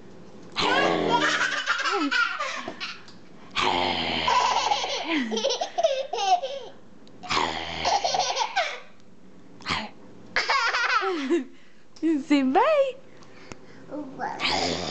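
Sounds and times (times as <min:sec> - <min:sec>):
adult growling: 0:00.6 - 0:01.3, 0:03.6 - 0:04.3, 0:14.3 - 0:14.9
toddler laughing hysterically: 0:01.1 - 0:03.0, 0:04.3 - 0:06.7, 0:07.9 - 0:08.8, 0:10.4 - 0:11.3.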